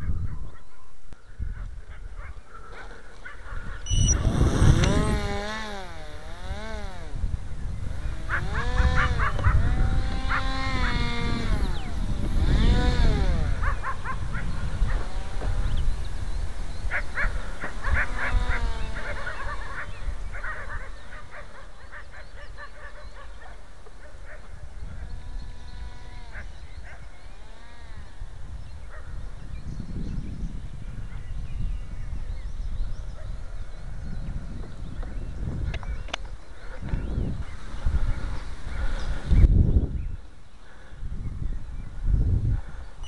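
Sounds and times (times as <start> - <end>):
wind rumble on microphone: 0.0 - 43.0
electric motor and propeller whine: 2.8 - 22.1, 23.9 - 30.9, 33.6 - 39.7.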